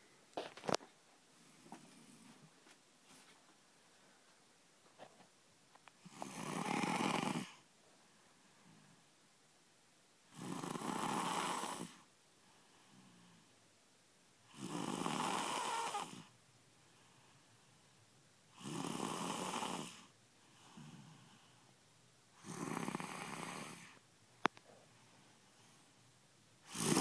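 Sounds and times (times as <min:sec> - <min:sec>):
faint breaths: 0:00.0 - 0:05.2, 0:15.6 - 0:18.6, 0:19.8 - 0:27.0
person snoring loudly: 0:06.0 - 0:07.6, 0:10.3 - 0:12.0, 0:14.5 - 0:16.3, 0:18.6 - 0:20.1, 0:22.4 - 0:24.0, 0:26.7 - 0:27.0.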